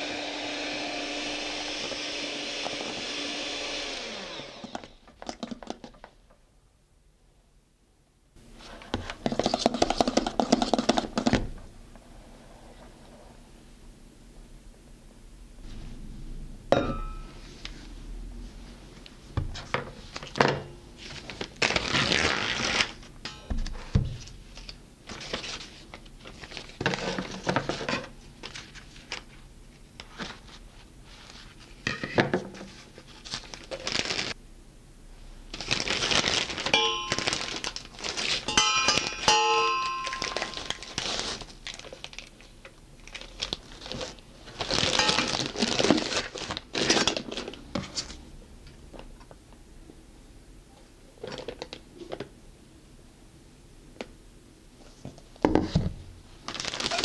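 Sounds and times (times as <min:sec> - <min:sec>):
plastic bag crinkling: 0:35.5 - 0:47.7, 0:56.4 - 0:57.0.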